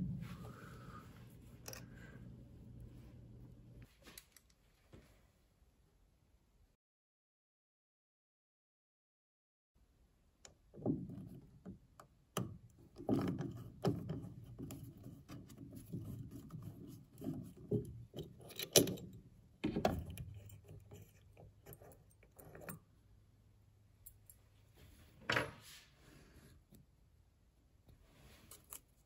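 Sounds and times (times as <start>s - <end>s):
screw threads creaking and scraping: 1.6s - 2.1s, 12.9s - 22.9s.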